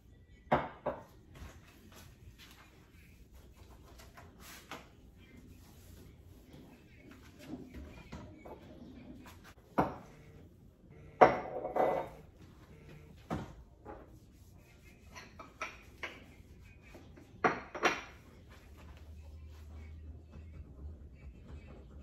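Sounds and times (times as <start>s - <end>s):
items knocking on stone countertop: 0.5s - 1.1s
kitchen items clattering: 11.2s - 12.4s.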